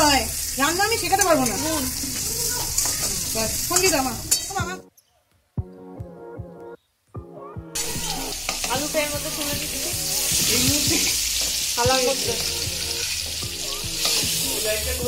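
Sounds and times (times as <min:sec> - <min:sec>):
potatoes sizzling in hot oil: 0:00.0 - 0:04.7, 0:07.8 - 0:15.0.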